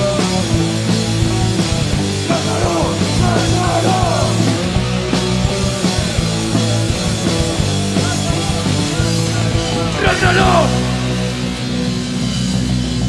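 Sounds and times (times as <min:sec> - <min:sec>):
distorted electric guitars: 0:00.0 - 0:13.0
pounding drum kit: 0:00.0 - 0:13.0.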